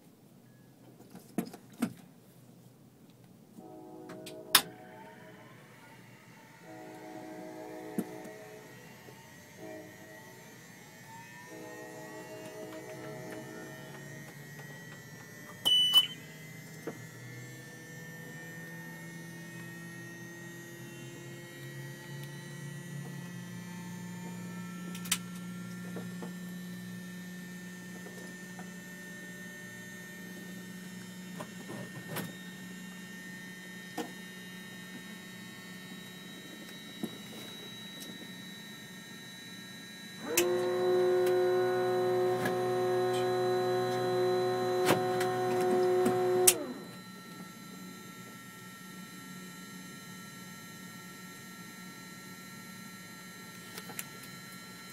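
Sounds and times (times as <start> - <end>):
cockpit electrics humming: 3.6 - 48.4
loud electric buzz: 6.0 - 25.2, 40.0 - 47.0
short high beep: 15.6 - 16.2.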